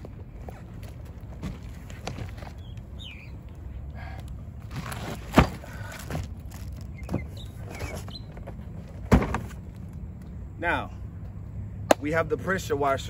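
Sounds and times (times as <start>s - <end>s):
birds chirping: 1.9s - 4.7s, 5.6s - 9.1s.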